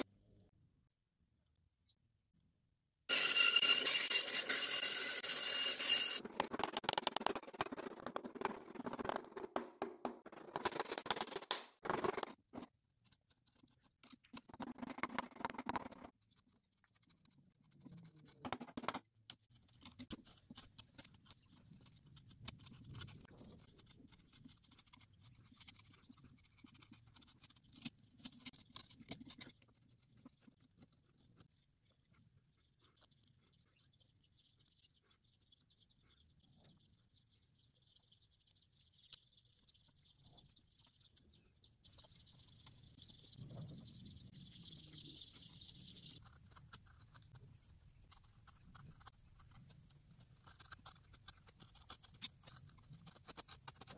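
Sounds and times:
chisel cutting and scraping wood: 3.1s - 34.0s, 44.7s - 53.9s.

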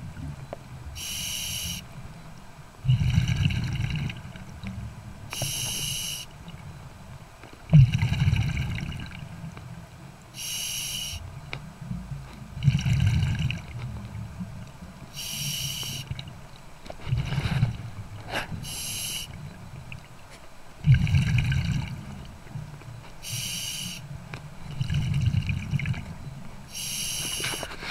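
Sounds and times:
regulator inhale hissing whistle: 1.0s - 1.8s, 5.3s - 6.3s, 10.4s - 11.2s, 15.2s - 16.0s, 18.6s - 19.3s, 23.2s - 24.0s, 26.7s - 27.8s
exhaled bubbles rumbling: 2.0s - 9.6s, 11.2s - 20.1s, 20.8s - 22.8s, 24.1s - 26.5s.

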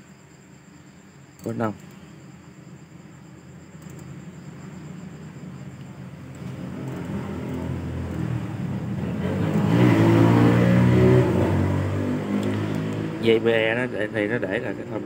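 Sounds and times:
vehicle engine approaching: 5.0s - 15.0s.

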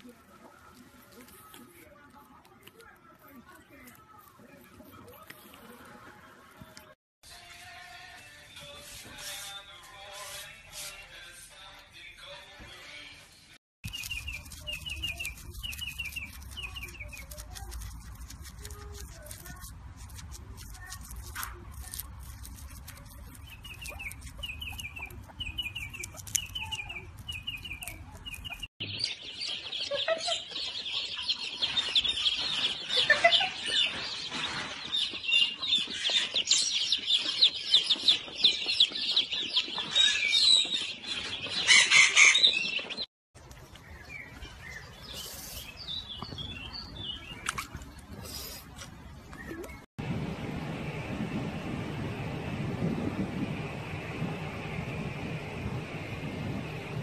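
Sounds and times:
chickens clucking and chirping: 23.6s - 48.6s
low hum: 49.6s - 57.0s.

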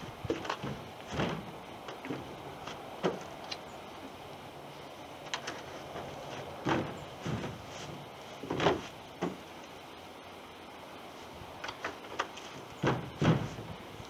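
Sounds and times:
canoe hull knocking and thudding: 0.3s - 2.3s, 6.6s - 7.7s, 8.4s - 9.4s, 12.8s - 13.7s.

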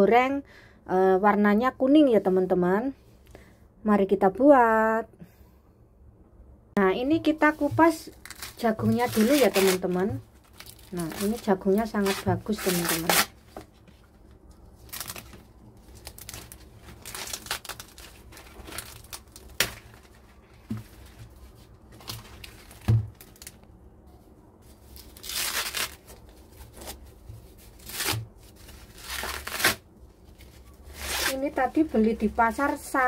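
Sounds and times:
corn husks tearing and rustling: 8.0s - 13.4s, 14.6s - 23.6s, 24.7s - 31.6s.

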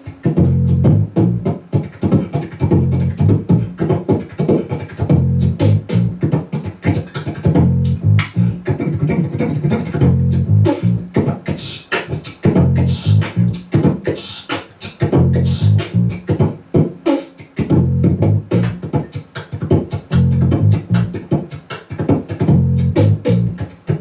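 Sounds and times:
beatbox percussion into microphone: 0.0s - 24.0s
low bass notes: 0.4s - 1.5s, 2.7s - 3.8s, 5.1s - 6.2s, 7.6s - 8.6s, 10.0s - 11.0s, 12.6s - 13.6s, 15.2s - 16.2s, 17.7s - 18.8s, 20.1s - 21.2s, 22.5s - 23.6s.

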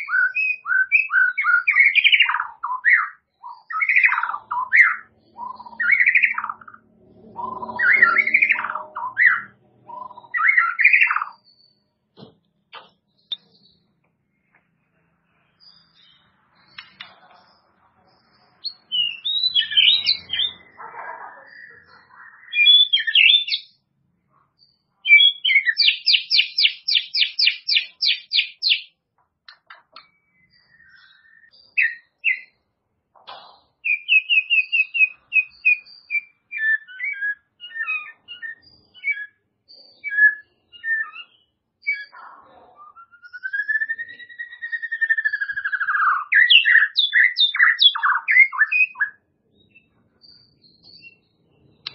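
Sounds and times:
bird singing whistled phrases: 0.0s - 6.8s, 7.4s - 11.8s, 18.6s - 20.8s, 21.4s - 23.8s, 25.0s - 28.9s, 30.0s - 32.6s, 33.8s - 39.4s, 40.0s - 42.2s, 42.8s - 51.9s.

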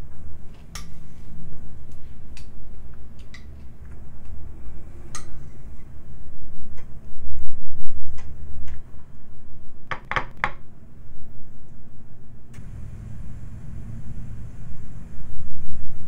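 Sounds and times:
low rumble: 12.6s - 16.0s.

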